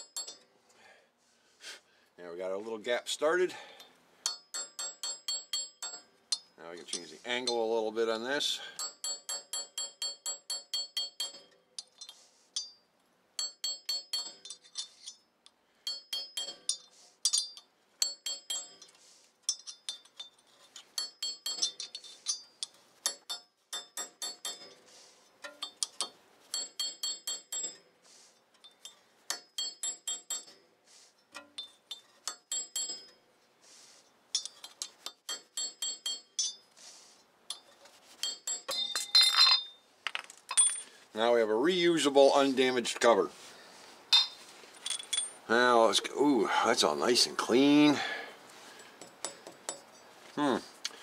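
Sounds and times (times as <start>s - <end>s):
hammer tapping chisel on metal: 0.0s - 0.4s, 4.2s - 7.7s, 8.8s - 12.8s, 13.4s - 15.2s, 15.8s - 18.9s, 21.0s - 24.8s, 25.4s - 27.8s, 28.6s - 30.6s, 31.3s - 33.2s, 34.3s - 36.6s, 37.5s - 39.4s, 49.0s - 50.0s.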